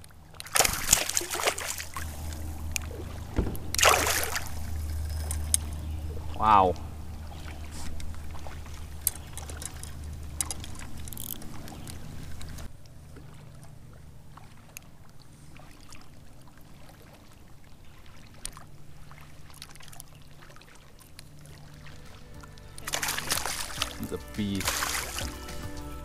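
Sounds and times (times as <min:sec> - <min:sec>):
water lapping against kayak: 0:00.0 - 0:26.0
steady low rumble: 0:01.8 - 0:13.2
gear clicking and knocking: 0:03.4 - 0:05.8, 0:08.9 - 0:12.7.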